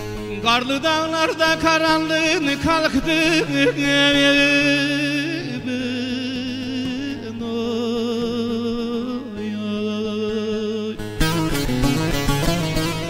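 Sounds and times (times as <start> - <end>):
man singing with vibrato: 0.0 - 13.0
long-necked lute playing: 10.3 - 13.0.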